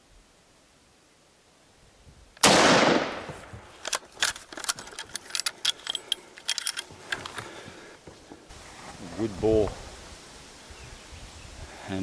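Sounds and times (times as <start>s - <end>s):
rifle shot: 2.4s - 3.7s
rifle metallic clicks and rattles: 3.8s - 7.5s.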